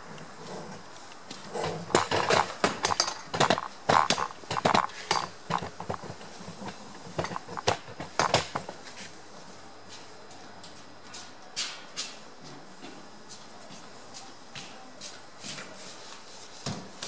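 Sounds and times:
irregular clicks and clatter: 0:01.6 - 0:08.8.

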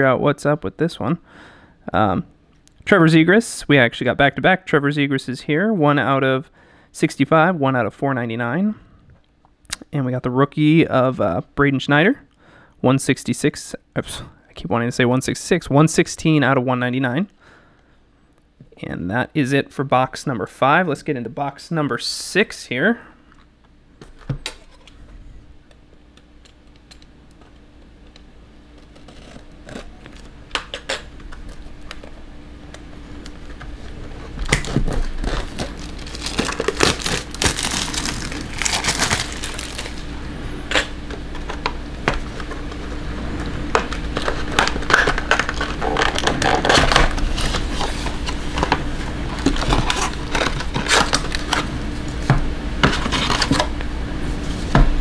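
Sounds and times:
faint steady hum: 0:00.0 - 0:55.0
plastic wrapper crinkling: 0:34.4 - 0:40.9.

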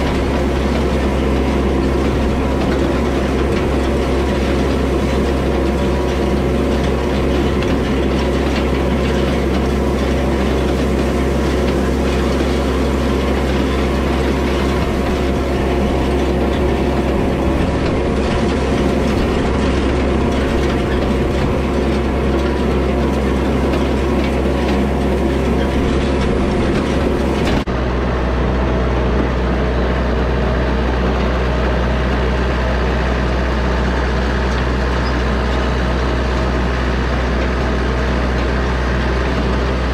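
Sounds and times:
hay rake clattering: 0:00.0 - 0:27.7
tractor diesel engine running: 0:00.0 - 0:39.9.

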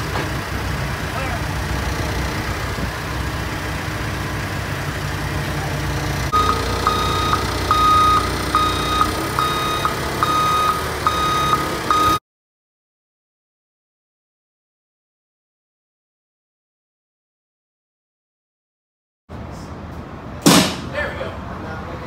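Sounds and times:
heavy vehicle engine idling: 0:00.0 - 0:12.2
backup alarm beeping: 0:06.3 - 0:12.2.

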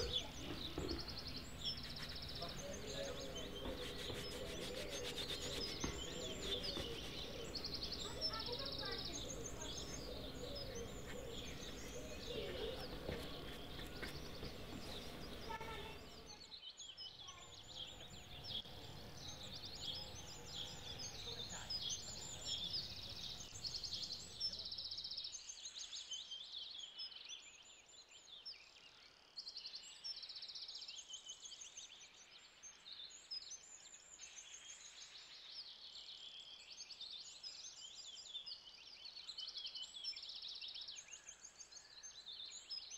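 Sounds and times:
low background murmur: 0:00.0 - 0:16.5
songbirds chirping: 0:00.0 - 0:42.9.

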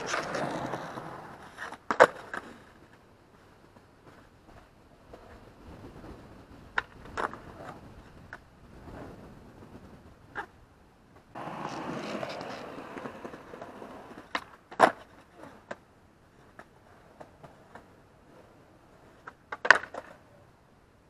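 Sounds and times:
skateboard landing clack: 0:00.0 - 0:02.6, 0:11.4 - 0:15.8, 0:19.2 - 0:20.2
skateboard wheels rolling on stone: 0:00.0 - 0:20.4.

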